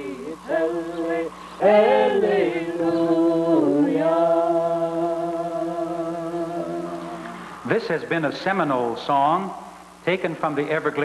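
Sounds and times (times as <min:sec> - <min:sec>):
voices singing chant-like notes: 0:00.0 - 0:07.6.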